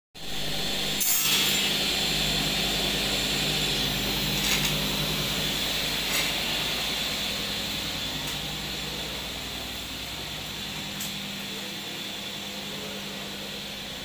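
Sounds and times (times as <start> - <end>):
workshop machinery hum: 0.2 - 14.0.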